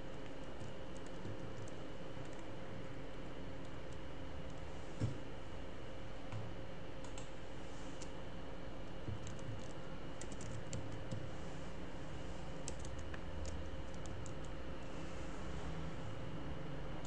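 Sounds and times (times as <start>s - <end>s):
faint steady hum: 0.0s - 17.0s
keyboard typing: 0.1s - 2.5s, 9.0s - 11.3s, 12.6s - 14.6s.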